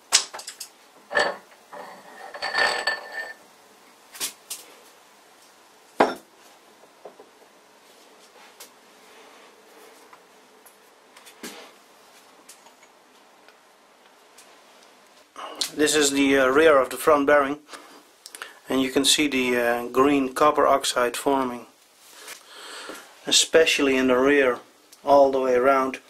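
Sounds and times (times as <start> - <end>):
metal clinks and scrapes: 0.4 - 3.4.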